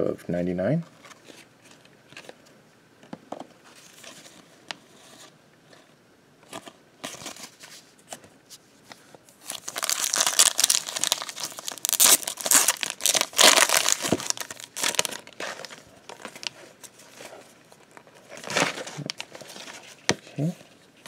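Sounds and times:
foil wrapper crinkling and tearing: 9.4s - 20.5s.

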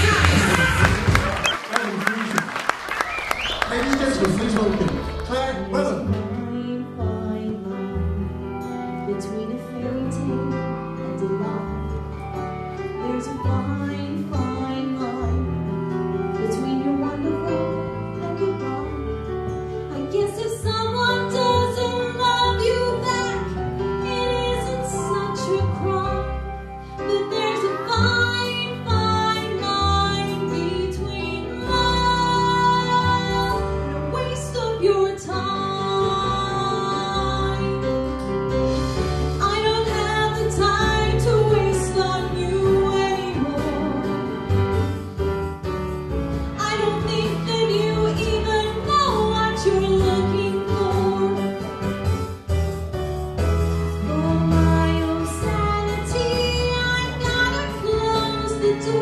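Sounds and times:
instrumental accompaniment: 2.9s - 59.0s
woman singing into a microphone: 6.1s - 12.2s, 13.0s - 38.0s, 39.3s - 44.4s, 46.6s - 51.6s, 54.0s - 59.0s.

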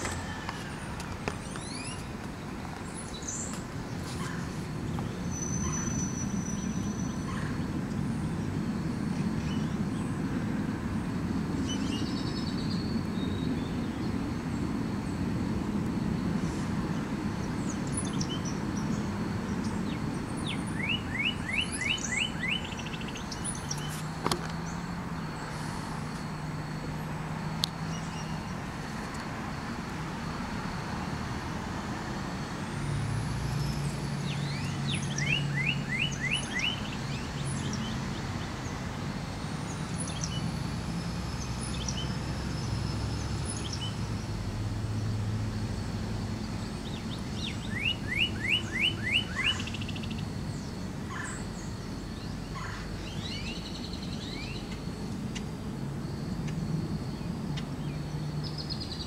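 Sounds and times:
bird chirping: 0.0s - 8.5s, 11.6s - 14.7s, 17.4s - 26.8s, 27.8s - 28.6s, 33.6s - 38.8s, 39.6s - 40.5s, 41.3s - 44.2s, 46.6s - 54.9s
distant traffic rumble: 0.0s - 59.0s.

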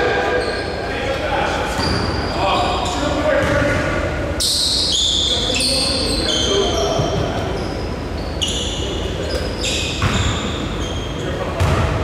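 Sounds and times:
players' voices: 0.0s - 12.0s
sneakers squeaking: 0.0s - 12.0s
basketball bouncing on court: 3.4s - 4.0s, 10.0s - 10.6s, 11.6s - 12.0s.

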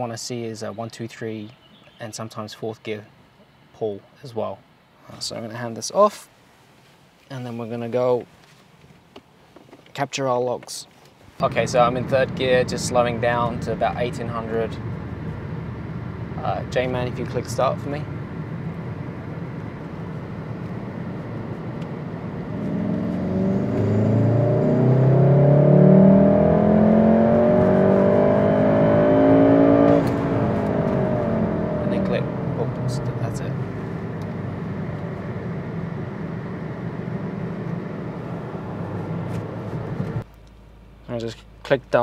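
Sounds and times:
road noise: 10.8s - 42.0s
car engine accelerating: 11.4s - 40.2s.

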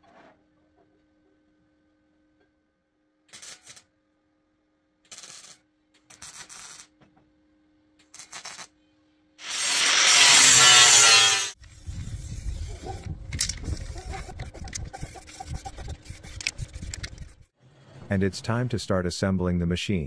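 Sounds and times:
welding crackling on steel: 3.3s - 3.9s, 5.1s - 7.0s, 8.0s - 8.7s
angle grinder on steel: 9.4s - 11.6s.

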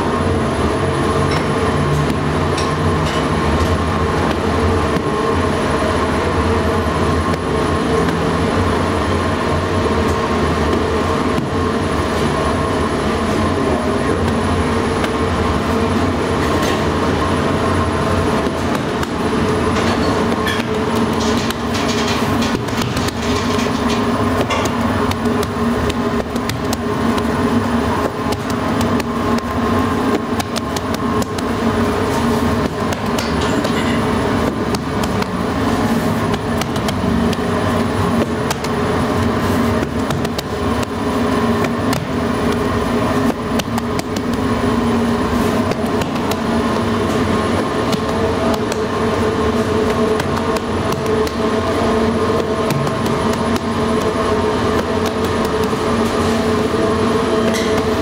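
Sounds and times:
bakery machinery drone: 0.0s - 58.0s
hands patting dough: 20.3s - 56.9s.

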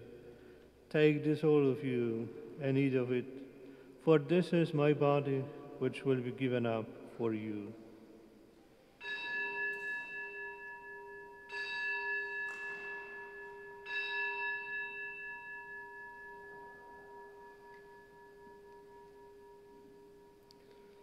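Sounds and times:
altar bell ringing: 9.0s - 20.5s.

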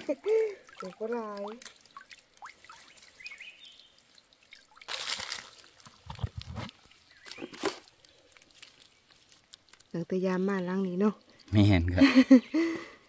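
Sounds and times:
water dripping and trickling: 0.0s - 13.0s
water splash: 4.0s - 9.5s.

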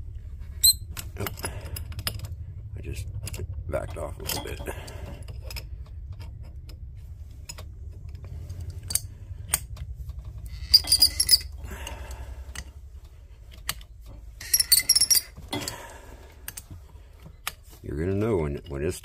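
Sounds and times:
steady low hum: 0.0s - 19.0s
metal wrenches clinking: 0.6s - 2.3s, 3.0s - 6.7s, 10.4s - 12.8s, 14.4s - 16.8s.

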